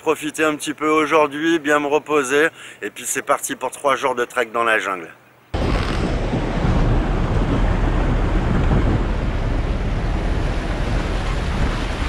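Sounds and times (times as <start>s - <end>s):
wind buffeting microphone: 5.5s - 12.0s
truck engine driving on dirt track: 5.6s - 12.0s.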